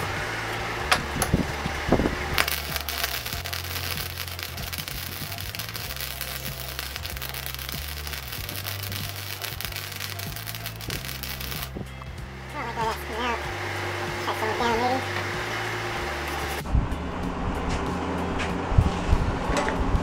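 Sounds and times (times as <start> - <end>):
welding arc crackling: 1.9 - 11.9.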